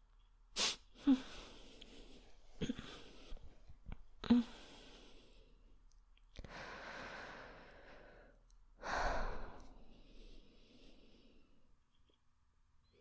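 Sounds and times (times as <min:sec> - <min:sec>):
woman breathing: 0:01.0 - 0:05.8, 0:06.4 - 0:11.7.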